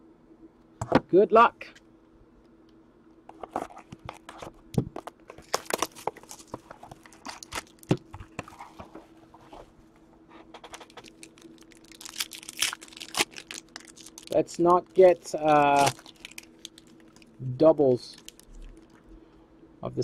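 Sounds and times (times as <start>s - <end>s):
plastic wrapping crinkling and tearing: 5.3s - 8.6s, 10.6s - 17.4s, 18.0s - 19.0s.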